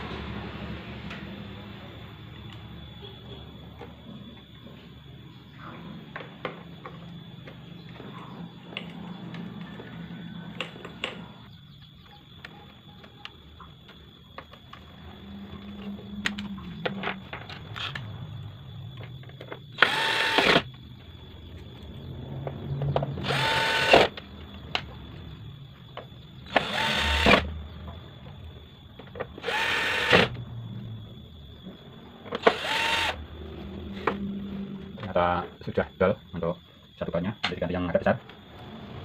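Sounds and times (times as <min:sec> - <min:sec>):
cordless drill spinning: 0:19.8 - 0:20.7, 0:23.2 - 0:24.1, 0:26.5 - 0:27.4, 0:29.4 - 0:30.3, 0:32.4 - 0:33.2.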